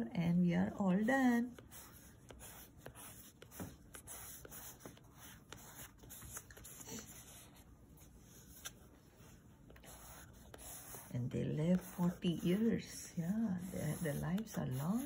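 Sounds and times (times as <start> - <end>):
crayon scratching on paper: 0.9 - 7.7, 9.7 - 15.0.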